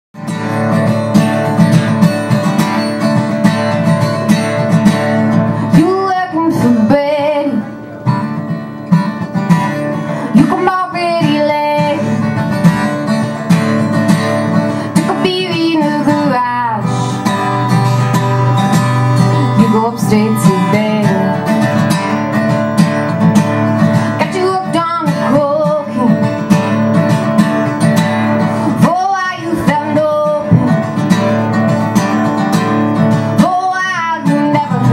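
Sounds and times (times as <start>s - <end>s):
acoustic guitar strumming: 0.2s - 34.9s
woman singing: 5.6s - 7.8s, 10.2s - 12.4s, 14.9s - 17.2s, 19.3s - 22.0s, 24.1s - 26.6s, 28.6s - 31.2s, 33.3s - 34.9s.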